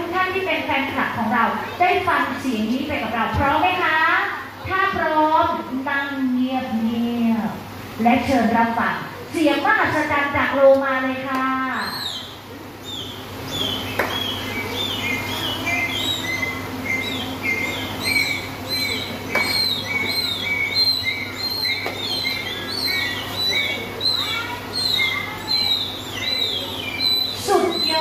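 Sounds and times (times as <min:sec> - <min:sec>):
steady low hum: 0:00.0 - 0:28.0
dolphin chirping: 0:11.7 - 0:28.0.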